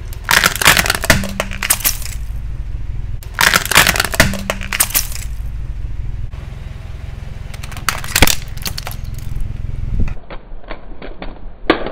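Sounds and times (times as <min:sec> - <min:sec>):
low car rumble: 0:00.0 - 0:10.3
plastic cracking under tyre: 0:00.1 - 0:02.4, 0:03.2 - 0:05.4, 0:07.5 - 0:09.4.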